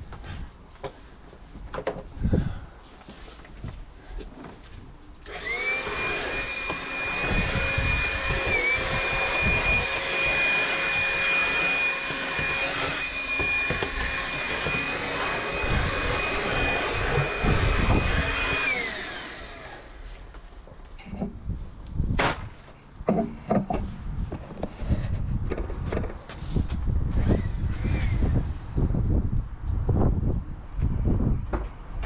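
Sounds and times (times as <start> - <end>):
handheld vacuum cleaner whining: 5.2 - 20.3.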